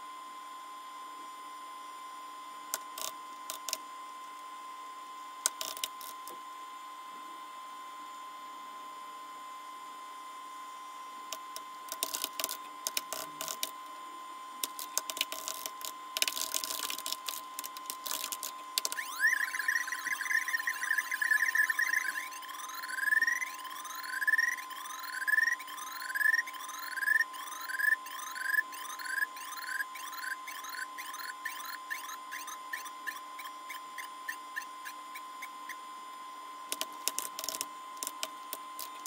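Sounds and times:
faint hum: 0.0 - 39.0
keyboard typing: 11.9 - 13.7, 14.6 - 35.0, 36.7 - 39.0
computer warbling beep: 18.9 - 35.8.

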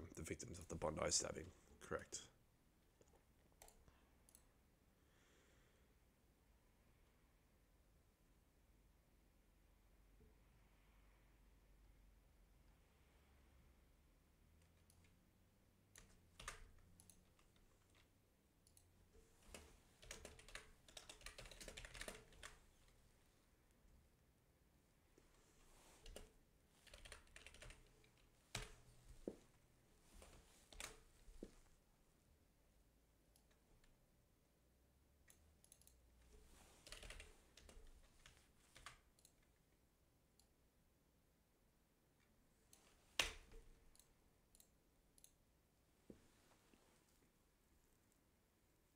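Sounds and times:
faint typing on keyboard: 3.0 - 4.7, 14.4 - 23.1, 25.2 - 31.9, 33.2 - 34.2, 35.1 - 40.6, 42.1 - 45.5
typing on computer keyboard: 15.9 - 18.1, 18.7 - 22.6, 26.0 - 28.8, 30.2 - 31.0, 36.8 - 39.5.

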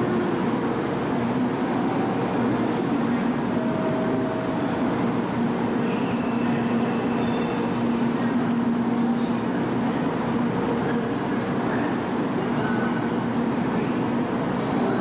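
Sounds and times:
train equipment humming: 0.0 - 15.0.

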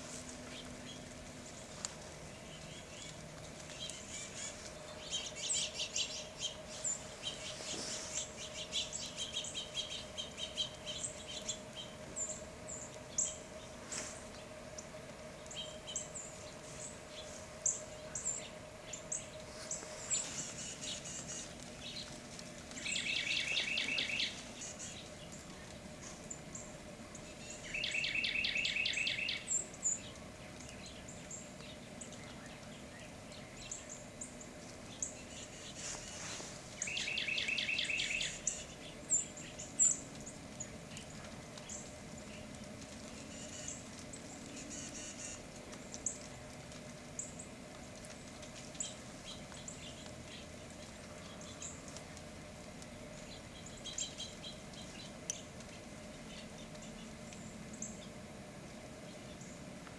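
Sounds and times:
songbirds chipping: 0.0 - 59.9
bird trills: 22.8 - 25.0, 27.5 - 29.6, 36.8 - 38.7.

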